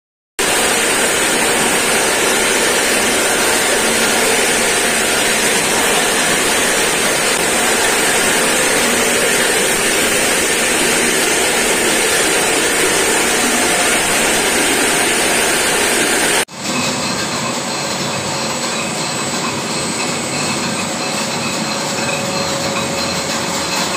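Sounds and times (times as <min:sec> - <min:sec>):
plastic grinder grinding: 0:00.4 - 0:16.4.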